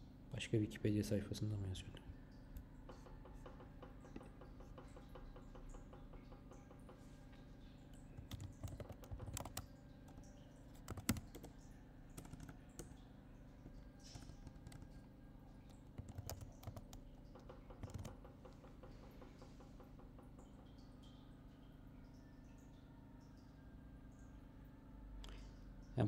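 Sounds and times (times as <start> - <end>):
faint steady hum: 0.0 - 26.0
computer keyboard typing: 8.2 - 13.0, 14.0 - 15.1, 15.7 - 19.0.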